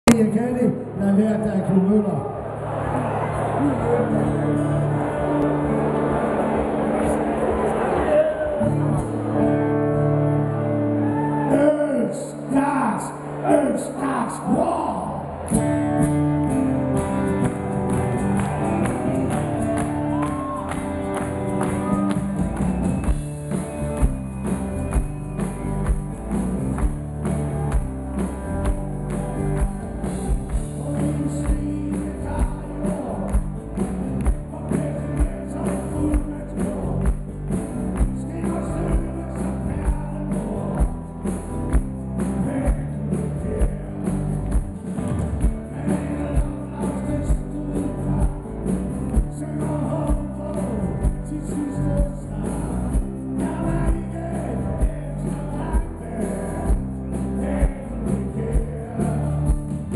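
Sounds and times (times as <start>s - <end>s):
live rock band playing: 3.1s - 11.5s, 15.4s - 59.9s
steady drum beat: 17.4s - 59.9s.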